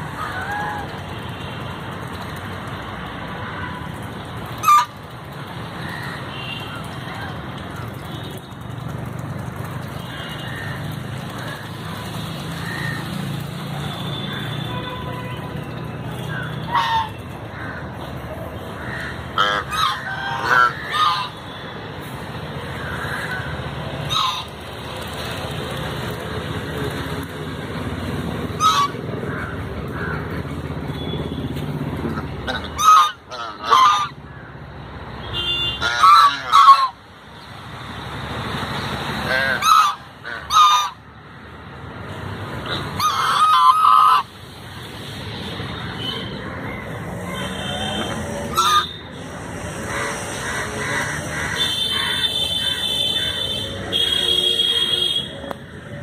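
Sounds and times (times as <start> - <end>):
geese honking: 4.6 - 5.0, 16.3 - 17.8, 18.8 - 21.4, 24.1 - 24.5, 28.6 - 30.1, 32.5 - 34.2, 35.8 - 37.0, 39.3 - 41.0, 43.0 - 44.3, 47.3 - 55.2.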